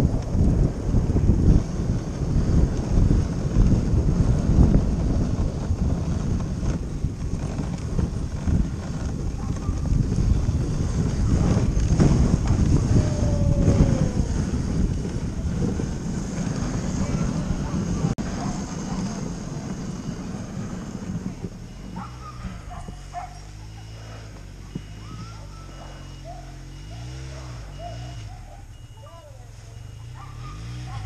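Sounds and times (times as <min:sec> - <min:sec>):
wind buffeting microphone: 0:00.0 - 0:29.0
sled runners sliding on snow: 0:00.0 - 0:31.0.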